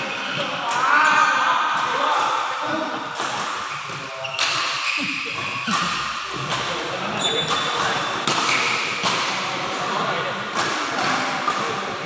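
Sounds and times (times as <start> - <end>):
voices murmuring: 0.0 - 12.0
rackets hitting shuttlecock: 3.1 - 12.0
shoes squeaking on court: 3.6 - 6.6, 7.2 - 8.7.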